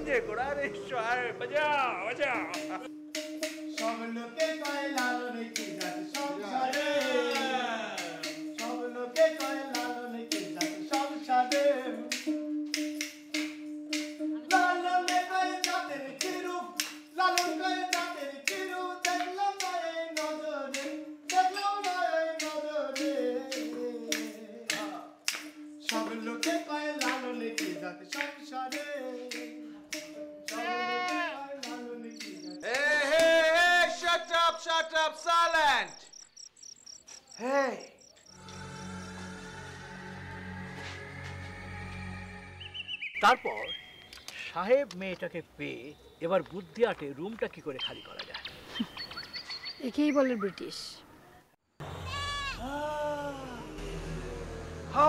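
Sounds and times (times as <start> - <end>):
steady drone note: 0.0 - 4.2, 38.4 - 42.7, 51.8 - 55.0
wooden clapper clacks: 2.4 - 33.3
man singing folk song: 3.8 - 12.0, 30.5 - 35.4.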